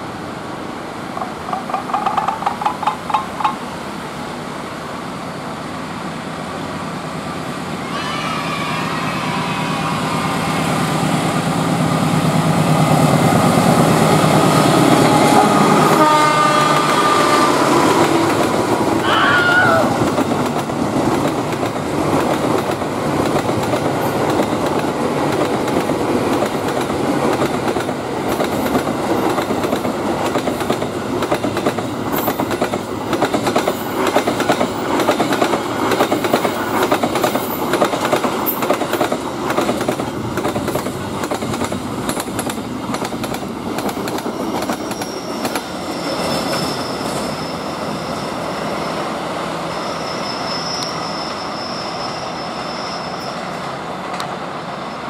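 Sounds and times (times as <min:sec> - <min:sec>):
train wheels clattering over rails: 0:01.1 - 0:04.2, 0:17.7 - 0:19.0, 0:20.0 - 0:47.4
high-pitched wheel squeal: 0:44.8 - 0:53.6.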